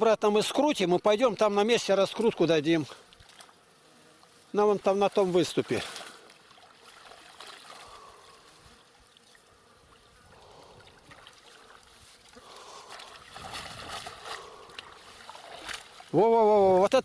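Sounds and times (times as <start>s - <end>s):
water trickling and splashing: 3.0s - 3.6s, 4.9s - 16.9s.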